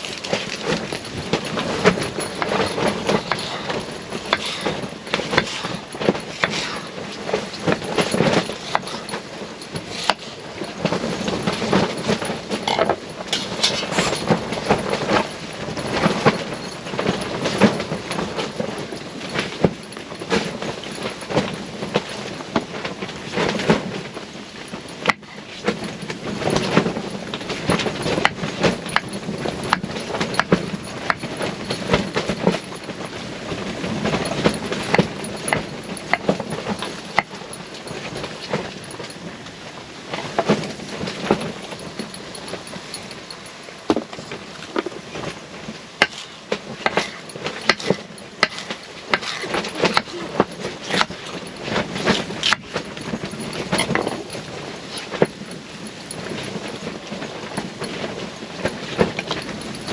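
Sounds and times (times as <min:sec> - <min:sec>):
wind buffeting tent fabric: 0:00.0 - 0:59.9
knife chopping on wooden board: 0:46.9 - 0:50.1.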